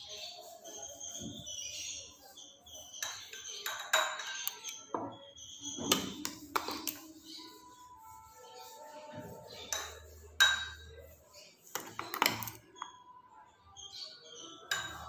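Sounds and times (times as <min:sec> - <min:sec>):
spoon clinking against glasses: 0:02.9 - 0:07.4, 0:09.6 - 0:11.0, 0:11.7 - 0:13.0, 0:14.6 - 0:15.0
thick pulp being spooned: 0:05.6 - 0:13.0.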